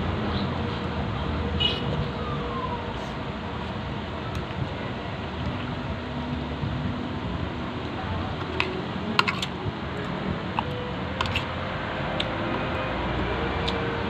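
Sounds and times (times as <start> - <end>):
cutlery clicking on plate: 8.5 - 9.5.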